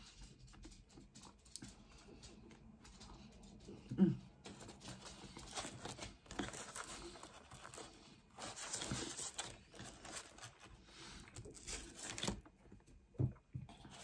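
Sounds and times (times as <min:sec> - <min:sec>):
rustling and scraping on cardboard: 0:04.4 - 0:14.0
pizza crust tearing: 0:05.3 - 0:12.7.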